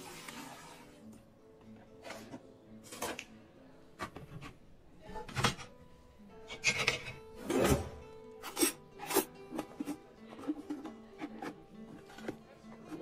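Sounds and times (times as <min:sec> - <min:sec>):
background music: 0:00.0 - 0:13.0
rubbing and scraping handling noises: 0:08.4 - 0:13.0.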